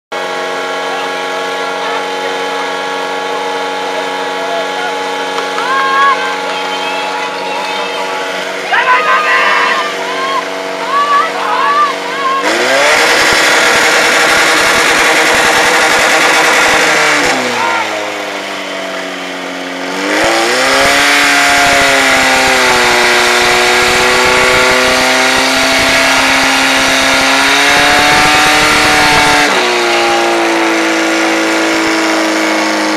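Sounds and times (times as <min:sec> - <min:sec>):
pump engine running at high revs: 0:00.1 - 0:32.9.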